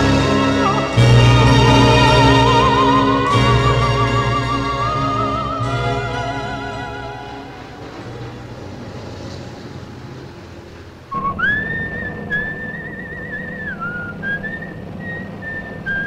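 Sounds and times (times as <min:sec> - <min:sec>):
man whistling a tune: 0:00.0 - 0:07.3, 0:11.1 - 0:16.0
car engine and road hum: 0:05.2 - 0:16.0.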